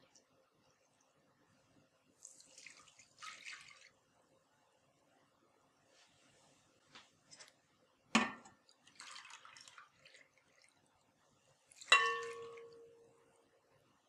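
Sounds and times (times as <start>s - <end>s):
water pouring into bowl: 2.2s - 4.0s, 8.6s - 10.9s, 11.7s - 13.0s
glass tumbler clinking: 11.8s - 13.1s.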